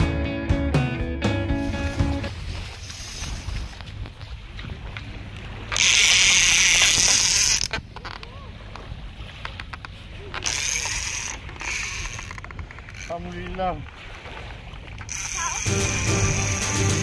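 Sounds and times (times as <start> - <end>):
fishing reel clicker buzzing: 5.7 - 7.8, 10.4 - 13.2, 15.1 - 17.0.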